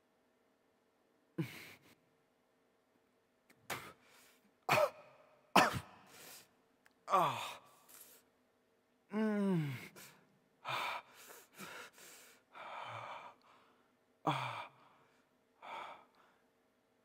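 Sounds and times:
faint steady hum: 0:00.0 - 0:17.0
man's strained vocal outbursts: 0:07.1 - 0:08.2.

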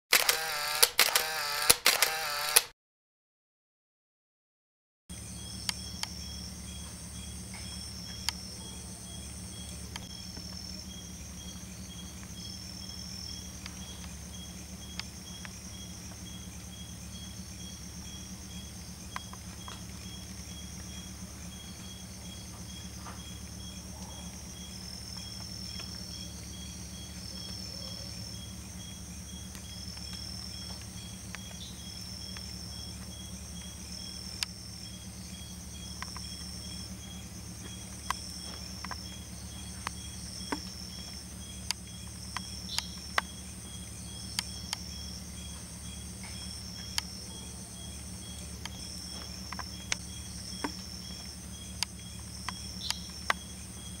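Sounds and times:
sharp clicks: 0:00.1 - 0:02.7, 0:39.8 - 0:43.3, 0:48.6 - 0:50.0, 0:50.6 - 0:53.5
insects trilling and chirping: 0:05.1 - 0:54.0
low steady hum: 0:05.1 - 0:54.0.

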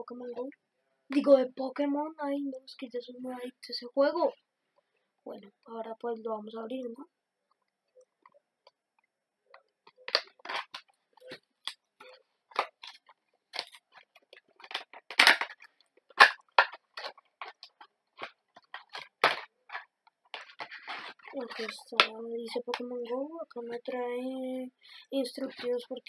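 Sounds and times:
plastic blister pack crackling: 0:09.8 - 0:22.8.

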